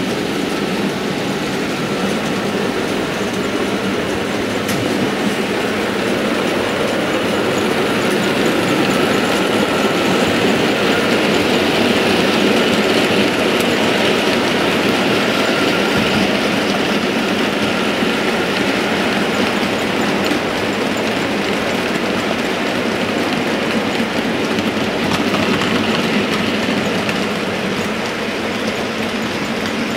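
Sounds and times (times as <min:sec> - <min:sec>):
model train wheels on rails: 0:00.0 - 0:29.9.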